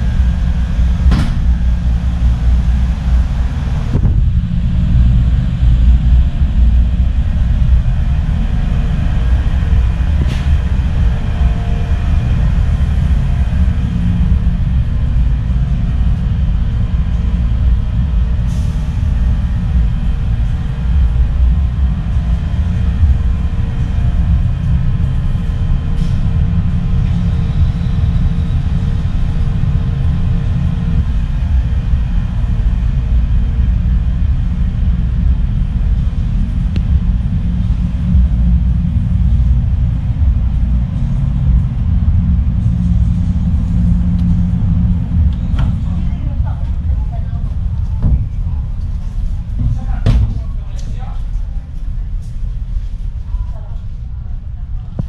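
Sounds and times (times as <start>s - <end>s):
ship engine rumble: 0.0s - 55.0s.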